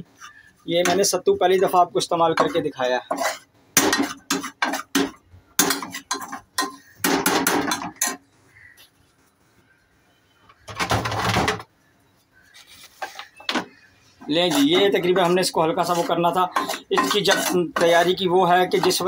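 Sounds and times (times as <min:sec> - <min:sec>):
metal spoon scraping a pot: 0:02.2 - 0:08.2, 0:13.0 - 0:19.0.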